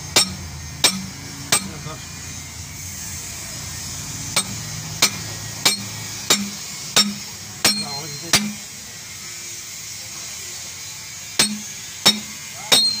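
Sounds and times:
hammer striking metal tool: 0:00.0 - 0:02.0, 0:04.2 - 0:08.7, 0:11.2 - 0:13.0.

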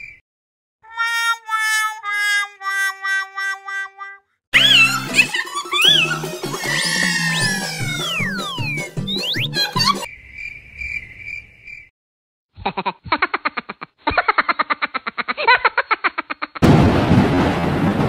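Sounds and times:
cartoon music with boing tones: 0:00.9 - 0:10.1
high chirping tone: 0:02.5 - 0:10.1
thunder and rain: 0:16.6 - 0:18.0.

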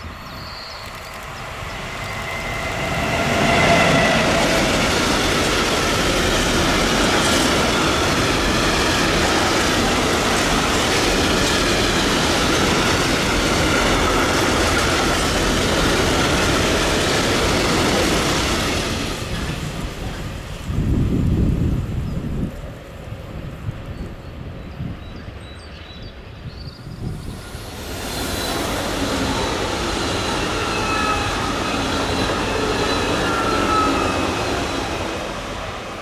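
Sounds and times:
train wheels rumbling on rails: 0:00.0 - 0:25.4, 0:26.2 - 0:36.0
electric locomotive passing: 0:00.0 - 0:36.0.

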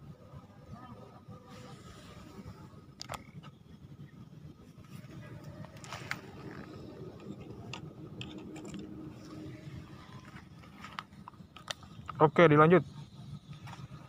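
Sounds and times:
low outdoor rumble: 0:00.0 - 0:14.0
phone handling clicks and scrapes: 0:05.6 - 0:09.4.

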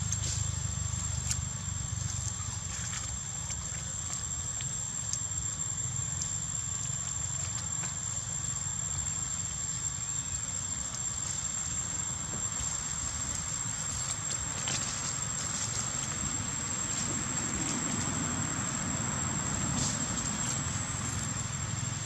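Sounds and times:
steady high-pitched whine: 0:00.0 - 0:22.0
rustles in dry leaf litter: 0:10.0 - 0:22.0.

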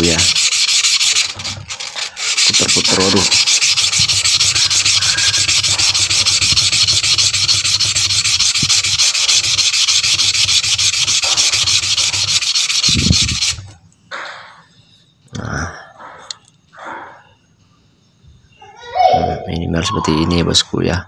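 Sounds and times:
stone scratching on wet sandpaper: 0:00.0 - 0:13.7.

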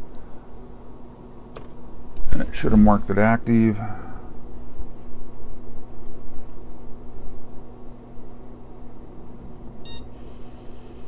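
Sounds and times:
computer humming: 0:00.0 - 0:11.0
short computer beep: 0:09.9 - 0:10.1.

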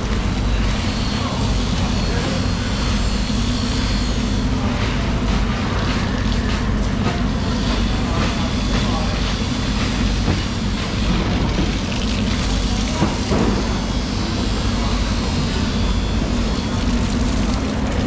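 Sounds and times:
low machine rumble: 0:00.0 - 0:18.0
hose water splashing on concrete: 0:03.8 - 0:18.0.

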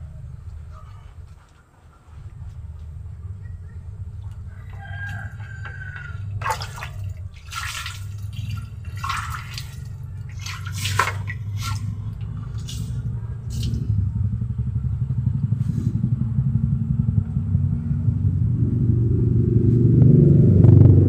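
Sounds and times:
steady low rumble: 0:00.0 - 0:21.0
water splashing onto soil: 0:05.1 - 0:13.9.

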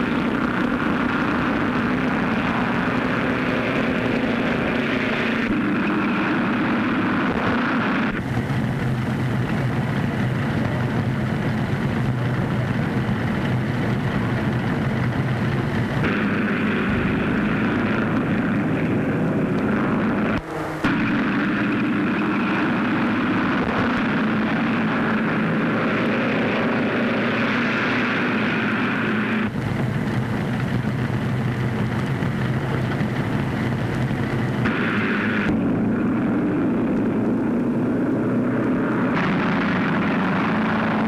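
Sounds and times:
race car engines droning: 0:00.0 - 0:41.0.

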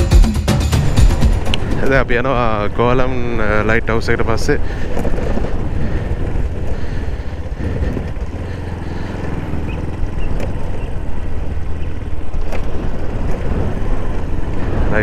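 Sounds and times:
rushing noise: 0:00.0 - 0:02.8
motorcycle engine running: 0:00.0 - 0:15.0.

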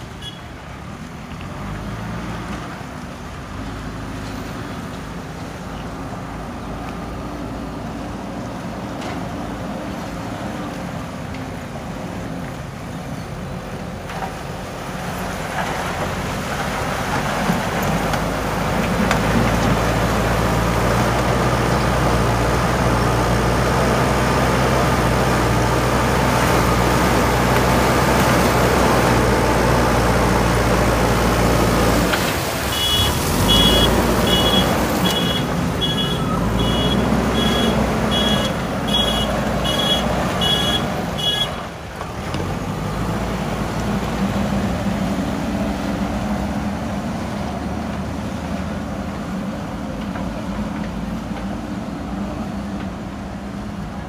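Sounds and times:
diesel engine under load: 0:00.0 - 0:54.0
bucket working gravel: 0:25.0 - 0:38.8
reversing alarm beeping: 0:32.7 - 0:41.4.

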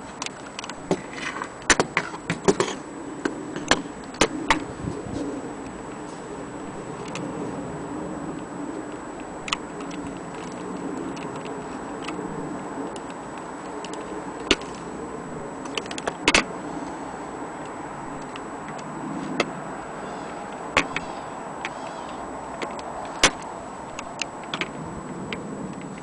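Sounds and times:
steady background noise: 0:00.0 - 0:26.0.

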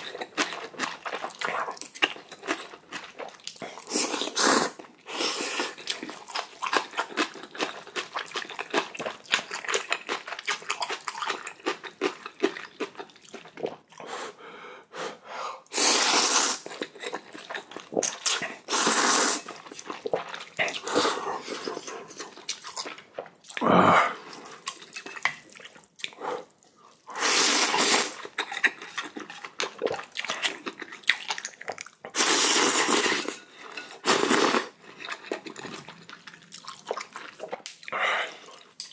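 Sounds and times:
wet chewing: 0:05.6 - 0:14.0, 0:16.6 - 0:33.4, 0:34.2 - 0:38.9
noodles being slurped: 0:15.7 - 0:37.8.

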